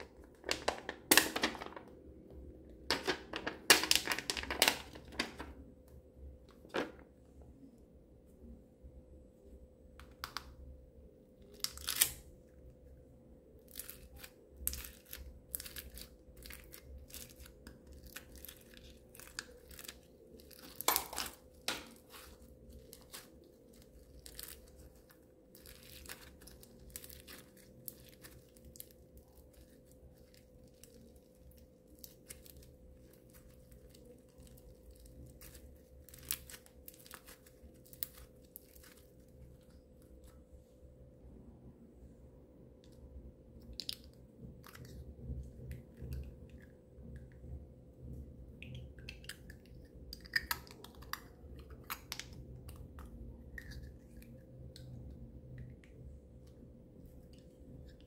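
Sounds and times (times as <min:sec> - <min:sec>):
slime crackling and popping: 0:11.6 - 0:12.2, 0:13.7 - 0:39.3.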